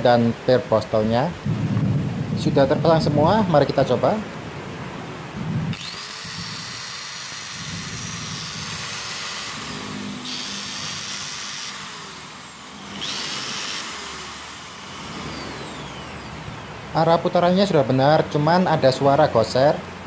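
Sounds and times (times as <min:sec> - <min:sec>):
angle grinder motor whine: 0:05.6 - 0:16.9
armature rubbing noise: 0:05.7 - 0:16.6.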